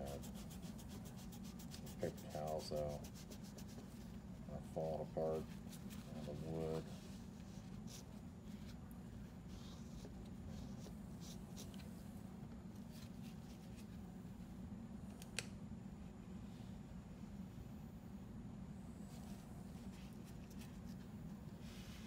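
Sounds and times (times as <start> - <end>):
paper towel rustling: 0.0 - 12.0
steady low hum: 0.0 - 22.0.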